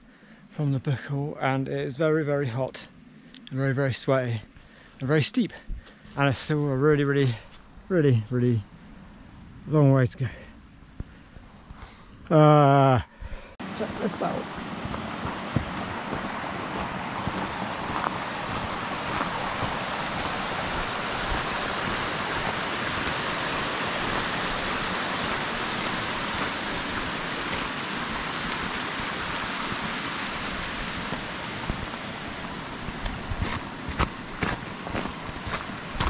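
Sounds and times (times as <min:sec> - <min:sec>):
stream rushing over rocks: 0:13.6 - 0:36.0.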